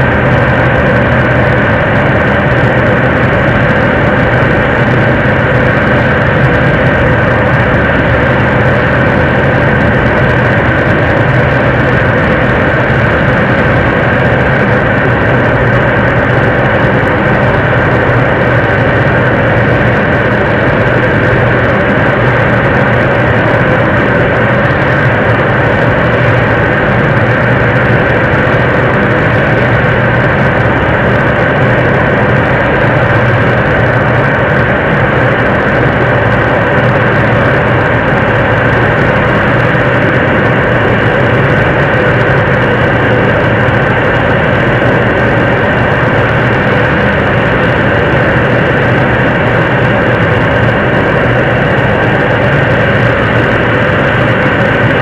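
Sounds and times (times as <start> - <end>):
rocket engine roaring: 0.0 - 55.0.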